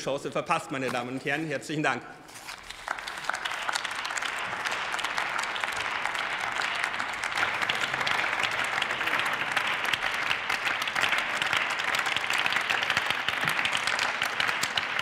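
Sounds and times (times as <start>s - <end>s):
crowd applause: 2.6s - 15.0s.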